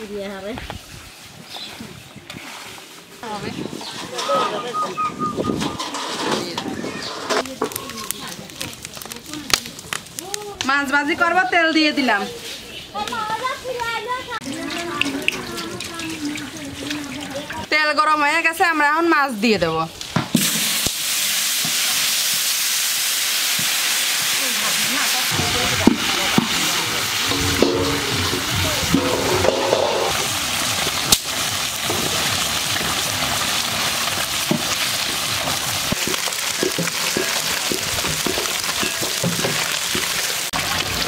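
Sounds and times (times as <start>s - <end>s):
fish deep-frying in hot oil: 14.4s - 17.7s, 20.3s - 41.0s.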